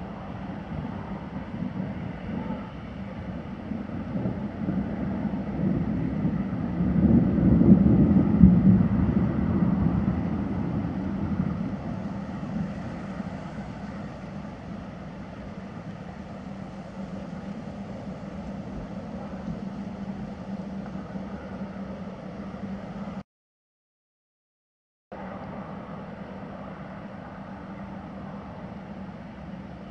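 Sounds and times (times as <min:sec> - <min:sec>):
steady low hum: 0:00.0 - 0:23.2, 0:25.1 - 0:29.9
distant thunder rumbling: 0:03.7 - 0:23.2.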